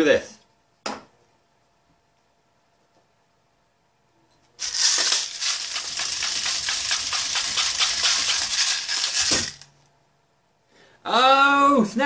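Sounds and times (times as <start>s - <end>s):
plastic pellets rattling: 4.6s - 9.8s.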